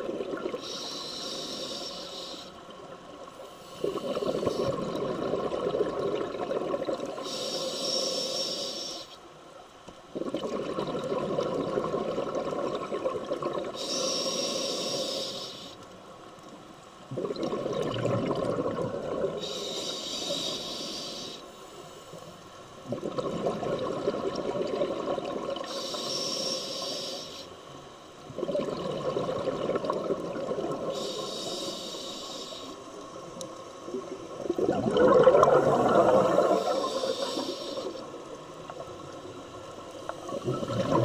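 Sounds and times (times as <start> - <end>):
regulator inhale hiss: 0.5 - 5.0, 7.1 - 9.4, 13.7 - 16.1, 19.2 - 22.4, 25.6 - 28.2, 30.8 - 33.4, 35.6 - 38.5
exhaust bubbles rushing: 34.4 - 36.7, 40.3 - 41.0.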